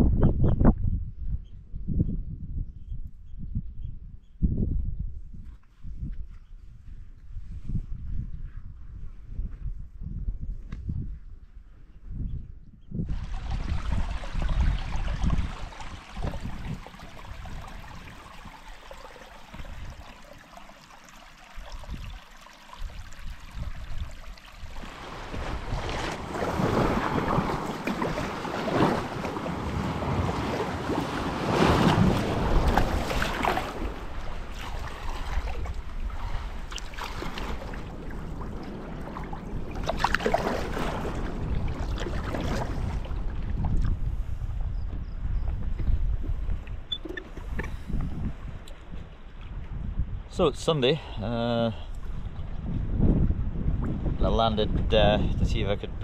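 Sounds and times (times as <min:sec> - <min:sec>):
wind on microphone: 0:00.0 - 0:56.0
stream trickling over stones: 0:13.1 - 0:25.3, 0:32.6 - 0:38.3
water splashing around kayak hull: 0:13.1 - 0:44.7.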